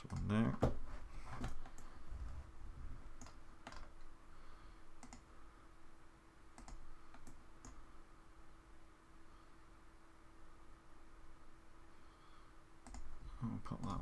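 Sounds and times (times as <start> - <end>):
computer mouse clicking: 0.0 - 0.3, 3.2 - 3.9, 5.0 - 5.3, 6.6 - 7.8, 12.8 - 13.1
faint steady hum: 0.0 - 14.0.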